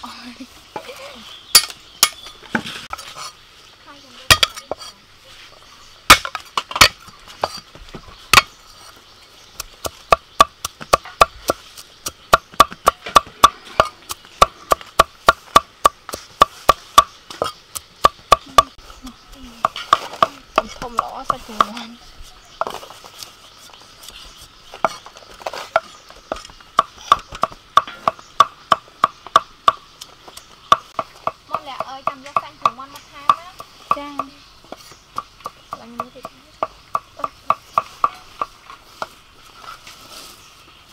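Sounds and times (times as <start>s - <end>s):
cleaver chopping on wooden board: 4.3s - 4.8s, 6.1s - 7.6s, 9.6s - 18.8s, 24.8s - 29.8s, 30.6s - 39.1s.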